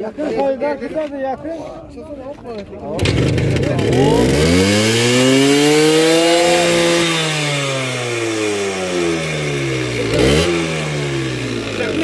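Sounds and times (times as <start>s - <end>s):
small motorcycle engine revving: 3.0s - 12.0s.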